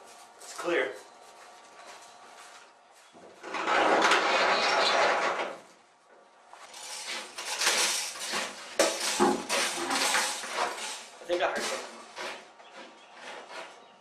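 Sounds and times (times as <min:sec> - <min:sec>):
sheet-metal door rolling open: 0:03.4 - 0:05.7, 0:06.7 - 0:11.8
metallic clanks and rattles: 0:06.7 - 0:12.0.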